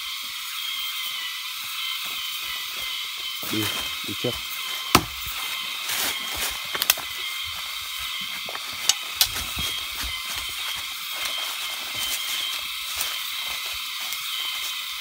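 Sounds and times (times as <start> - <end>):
insects hissing: 0.0 - 15.0
twigs snapping underfoot: 4.9 - 7.2, 8.4 - 13.2.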